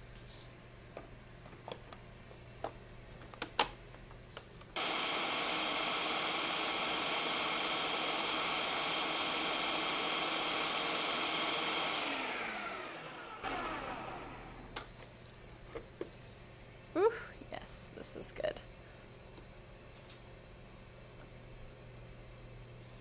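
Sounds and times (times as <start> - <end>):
electric blender running: 4.8 - 14.8.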